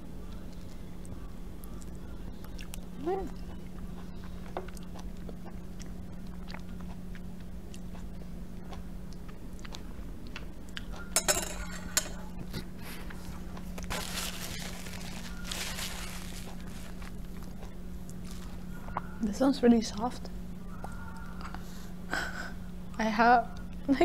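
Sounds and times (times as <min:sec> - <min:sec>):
chewing mouth sounds: 0:00.3 - 0:11.1, 0:16.4 - 0:19.1
paper napkin rustling: 0:13.8 - 0:17.4.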